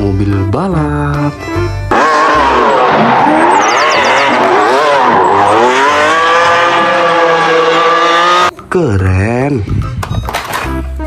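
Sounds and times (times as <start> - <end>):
sports car engine revving: 1.9 - 8.5
tyres screeching: 1.9 - 8.5.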